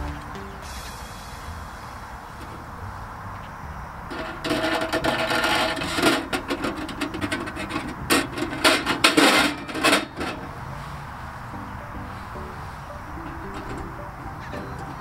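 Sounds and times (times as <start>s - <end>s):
metal rod scraping metal: 4.1s - 10.5s.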